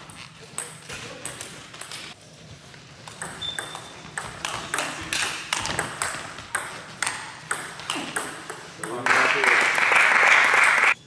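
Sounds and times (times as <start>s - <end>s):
table tennis balls clicking: 3.0s - 9.2s.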